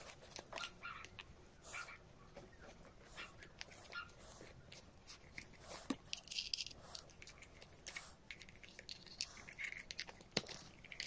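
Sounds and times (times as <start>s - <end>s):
plastic parts clicking and rustling: 4.7s - 11.0s.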